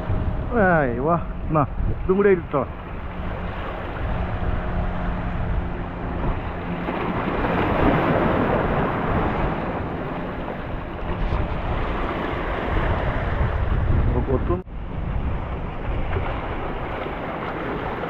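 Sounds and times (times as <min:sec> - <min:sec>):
wind buffeting microphone: 0:00.0 - 0:18.0
sea waves splashing against rocks: 0:06.6 - 0:13.5, 0:16.0 - 0:18.0.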